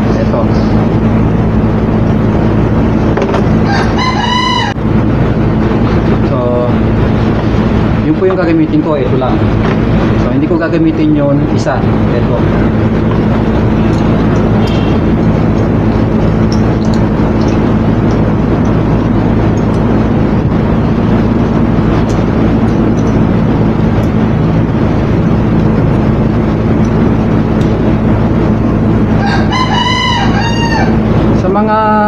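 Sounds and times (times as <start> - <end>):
loud machine drone: 0.0 - 32.0
rooster crowing: 3.6 - 4.8, 29.1 - 31.1.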